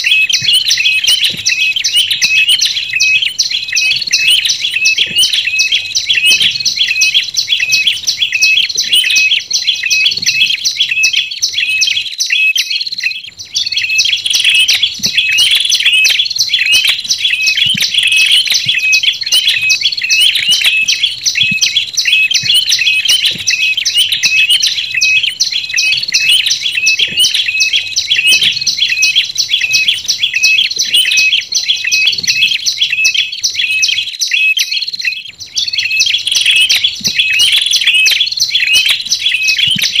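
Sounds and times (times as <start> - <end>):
birds chirping rapidly: 0.0 - 40.0.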